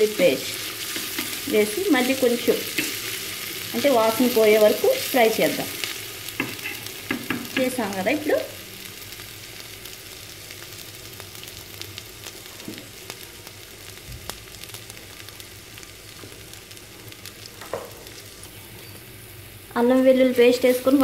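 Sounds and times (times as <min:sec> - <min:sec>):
paste sizzling in hot oil: 0:00.0 - 0:21.0.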